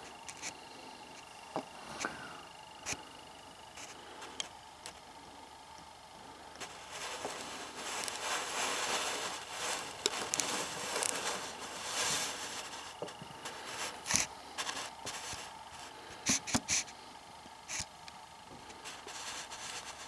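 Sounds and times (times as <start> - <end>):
rubbing and scraping handling noise: 0.0 - 2.1, 3.7 - 5.0, 6.6 - 17.0, 17.6 - 18.0, 18.6 - 20.0.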